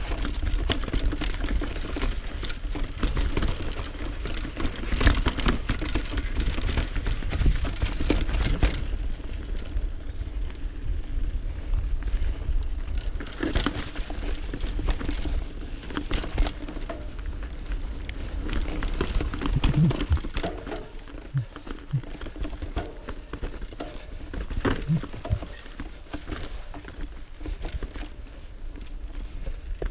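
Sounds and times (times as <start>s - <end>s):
bike rattling and knocking: 0.0s - 29.9s
bike tyres crunching over dirt: 0.0s - 29.9s
wind rumbling on microphone: 4.8s - 22.4s, 24.2s - 26.0s.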